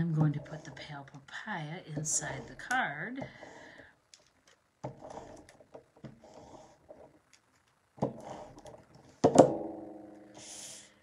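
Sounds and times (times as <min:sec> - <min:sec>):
tool rubbing on paper: 0:04.9 - 0:07.0, 0:08.1 - 0:08.7
paper sheet scraping: 0:05.0 - 0:05.5, 0:06.1 - 0:06.9, 0:08.1 - 0:08.7.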